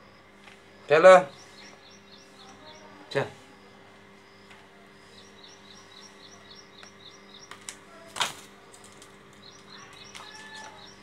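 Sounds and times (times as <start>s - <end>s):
baby parrot chirping: 9.5s - 11.0s.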